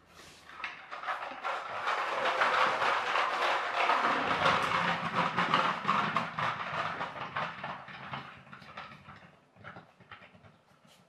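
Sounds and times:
plastic toy tractor rattling on wood: 0.4 - 11.0.

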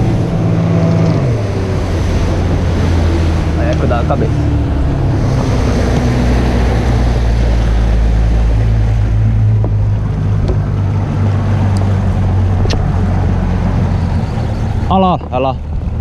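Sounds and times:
outboard motor running: 0.0 - 16.0
water rushing along hull: 0.0 - 16.0
wind on microphone: 0.0 - 16.0.

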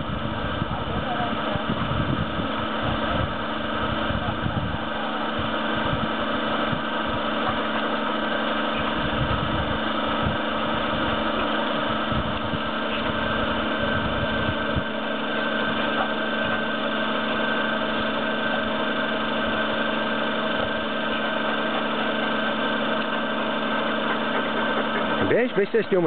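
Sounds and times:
motor humming: 0.0 - 26.0
low rumbles: 8.8 - 14.9, 24.6 - 26.0.

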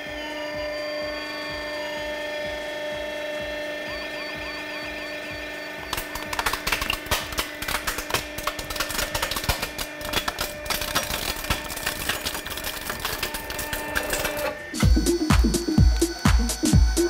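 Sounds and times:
steady hum: 0.0 - 17.0
plastic crackling and snapping: 5.9 - 14.6.

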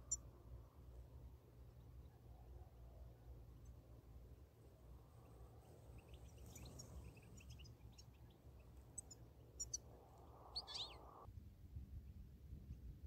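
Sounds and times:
goldfinches twittering: 5.6 - 11.3.

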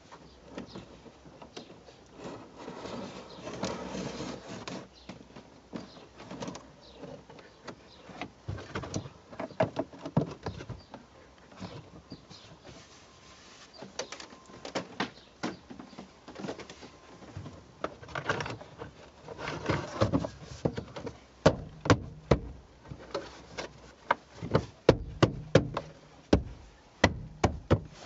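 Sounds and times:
rustling scrapes: 0.0 - 9.5, 11.4 - 14.4, 18.0 - 21.2, 22.9 - 24.9.

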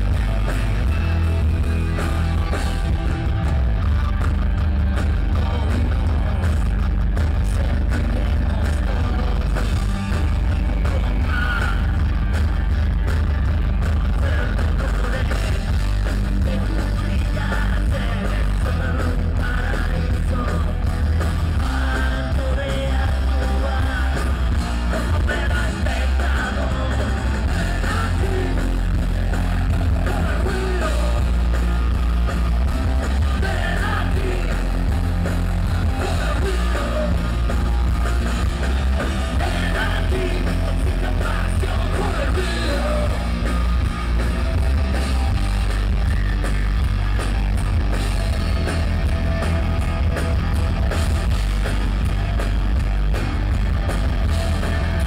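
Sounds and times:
bass guitar: 0.0 - 55.0
drums: 0.0 - 55.0
electric guitars: 0.0 - 55.0
man singing: 5.1 - 12.0, 13.9 - 31.6, 33.2 - 37.7, 39.0 - 43.8.

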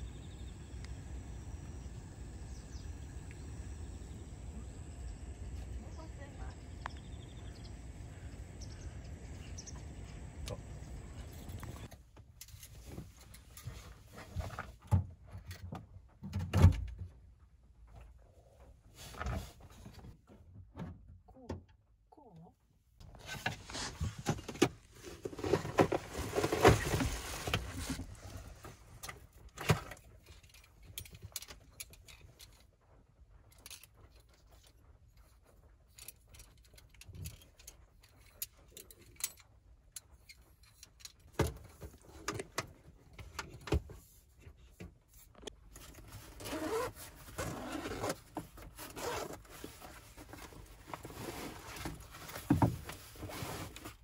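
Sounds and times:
bags rustling: 25.0 - 28.5
small metal clicks and scrapes: 29.0 - 32.8, 33.4 - 41.4.

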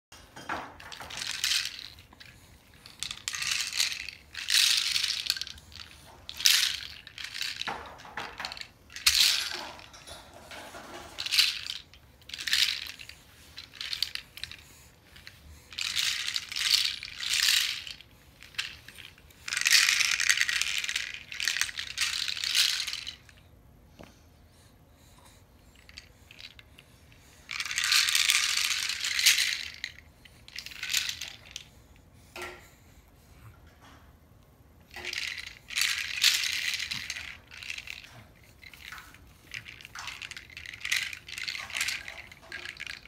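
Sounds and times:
rainmaker beads rattling: 0.4 - 23.3, 25.7 - 31.8, 34.9 - 43.0.

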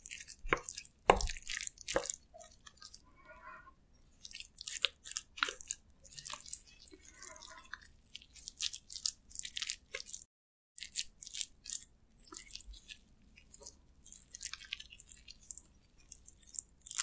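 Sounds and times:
wet sticky crackling of food: 0.0 - 3.0, 4.1 - 17.0
wooden spoon stirring in glass bowl: 0.0 - 3.3, 4.0 - 10.2.

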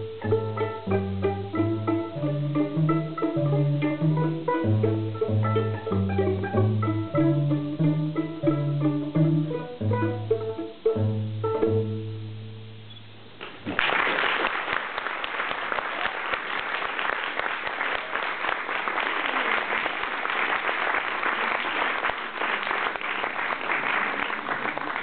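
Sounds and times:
string ensemble playing: 0.0 - 12.4
audience applauding: 13.4 - 25.0.

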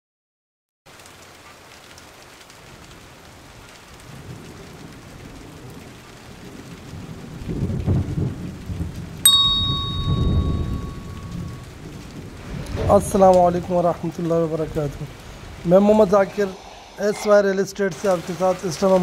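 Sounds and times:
rain: 0.9 - 19.0
thunder rumbling: 2.7 - 19.0
electronic chime: 9.3 - 11.6.

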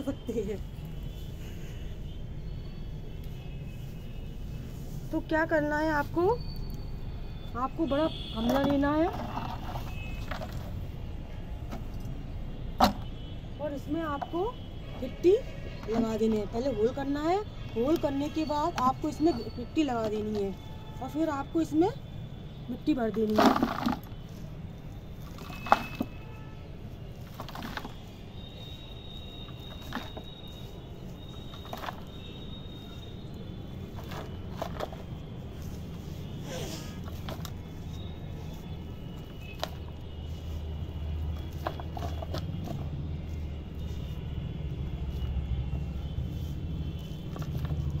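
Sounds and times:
grit and pebbles rattling: 8.4 - 10.9, 23.2 - 24.4, 25.2 - 26.2, 27.2 - 28.2, 29.4 - 32.4, 33.8 - 35.6, 41.4 - 43.0.

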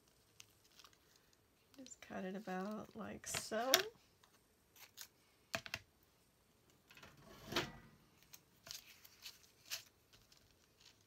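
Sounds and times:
tape rustling: 0.0 - 5.2, 8.0 - 11.0.

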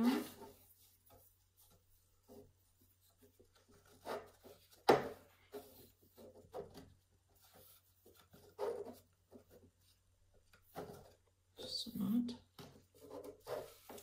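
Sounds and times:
yarn rubbing and handling: 0.0 - 14.0.

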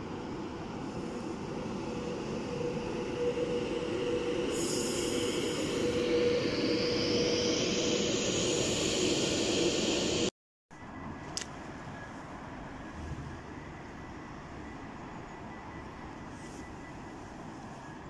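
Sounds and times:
train rumble: 0.0 - 18.0
electric train motor whine: 0.5 - 10.3.

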